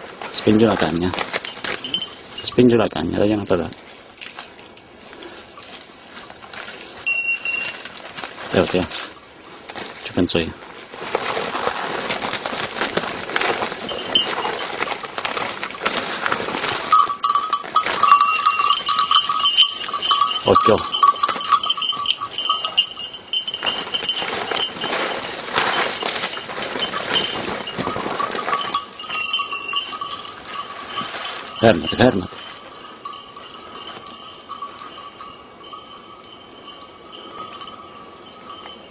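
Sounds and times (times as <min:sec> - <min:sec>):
brush crackling and rustling: 0:00.0 - 0:38.9
dog collar bell ringing: 0:01.3 - 0:03.4, 0:07.1 - 0:07.9, 0:13.8 - 0:14.8, 0:16.8 - 0:38.9.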